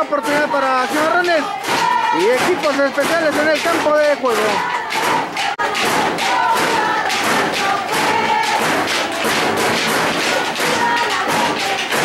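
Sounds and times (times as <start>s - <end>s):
crowd chanting and shouting: 0.0s - 12.0s
drums beating rapidly: 0.0s - 12.0s.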